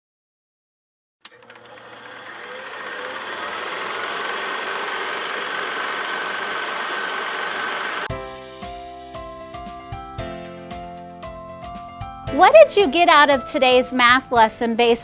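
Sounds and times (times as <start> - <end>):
film projector clatter: 1.3 - 8.1.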